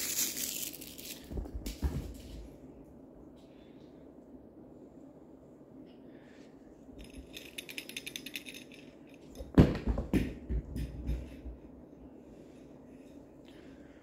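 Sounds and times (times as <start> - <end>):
toy ball rattling across floor: 0.0 - 2.4, 7.0 - 11.8
kitten pouncing thumps: 9.5 - 11.3.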